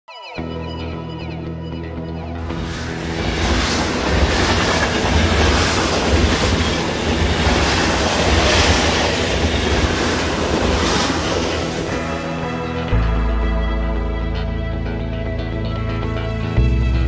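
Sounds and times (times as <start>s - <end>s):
train rumbling over viaduct: 2.4s - 13.0s.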